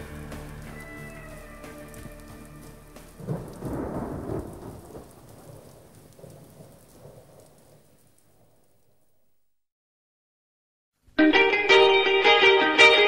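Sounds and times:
thunder rumbling: 0.0s - 9.2s
rain hissing: 0.0s - 9.3s
song: 11.2s - 13.0s.

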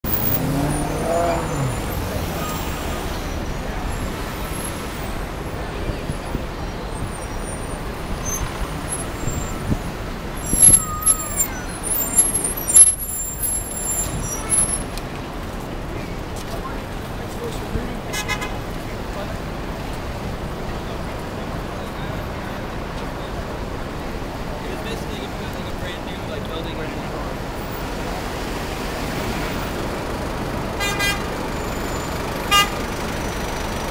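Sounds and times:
rumble of passing traffic: 0.0s - 33.9s
wavering squeal: 10.4s - 14.8s
car horn honks: 18.1s - 18.6s, 30.8s - 31.3s, 32.4s - 32.9s.

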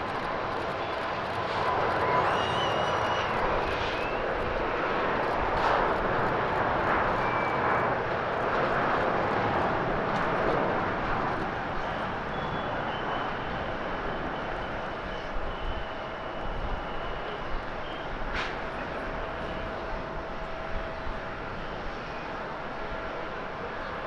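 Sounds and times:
faint high whine: 0.0s - 10.4s, 11.4s - 24.0s
jet engine rush: 0.0s - 24.0s.

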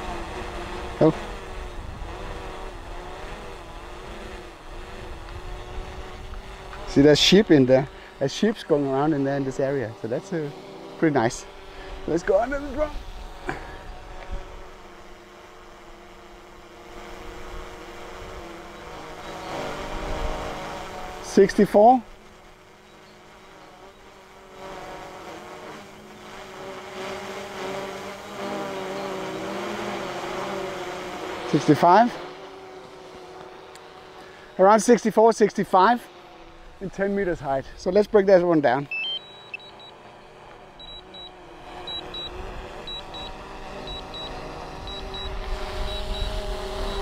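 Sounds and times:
drone propeller hum: 0.0s - 47.0s
short high beeps: 38.9s - 40.0s, 40.8s - 41.3s, 41.9s - 45.3s.

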